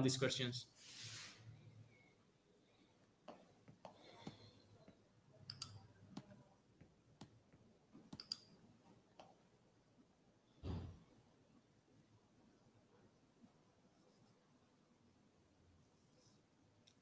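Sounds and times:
thump: 10.6 - 11.0.

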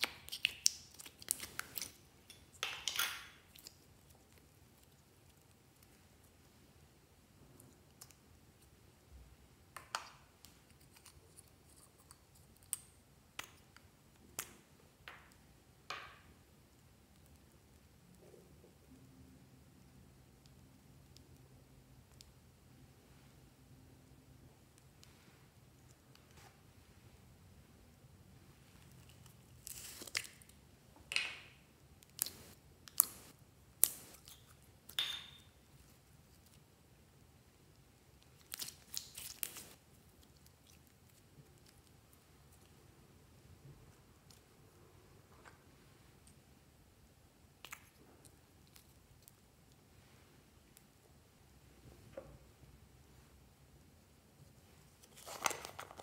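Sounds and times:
jelly tearing with crackles: 28.8 - 30.6, 38.2 - 42.0.

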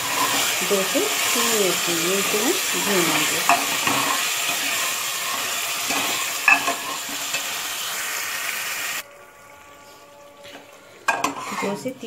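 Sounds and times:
meat sizzling in hot oil: 0.0 - 9.0
metal ladle clinking on pot: 6.0 - 6.8.

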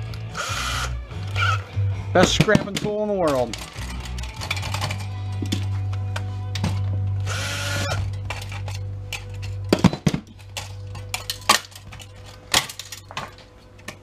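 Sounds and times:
cordless drill spinning: 0.2 - 1.7, 7.2 - 8.0.

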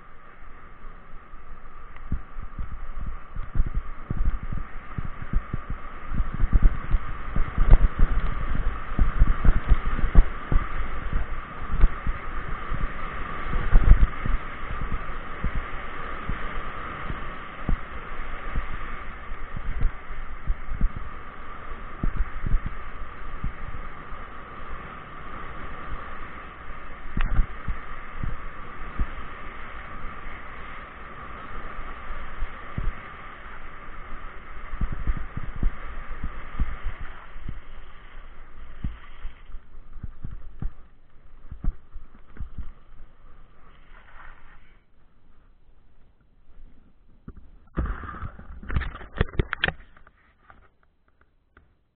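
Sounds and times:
bike tyres hissing on gravel: 0.0 - 45.0
wind: 0.0 - 51.9
tyres hissing on gravel: 36.8 - 39.8, 42.8 - 44.9
bike thumping over bumps: 38.7 - 42.9.

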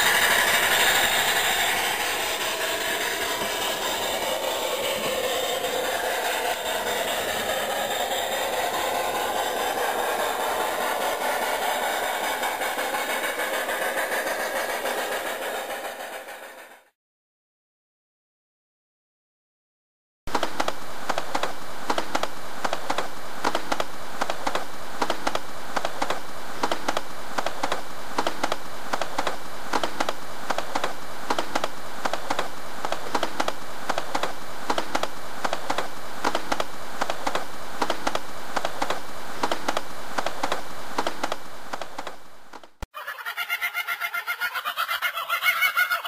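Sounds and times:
fast clatter of small clicks: 20.3 - 42.7.

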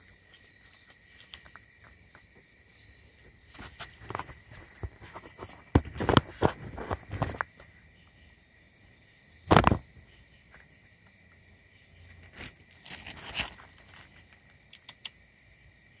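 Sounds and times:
night insects trilling: 0.0 - 16.0
loud rustle or thump: 9.5 - 9.8.

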